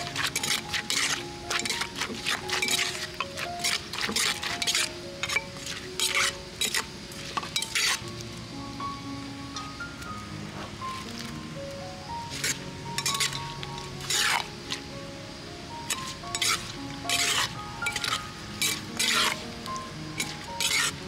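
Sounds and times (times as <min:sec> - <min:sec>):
metal spoon scraping clay mortar: 0:00.0 - 0:08.0, 0:12.3 - 0:14.5, 0:15.9 - 0:19.4, 0:20.2 - 0:21.0
background music: 0:00.0 - 0:21.0.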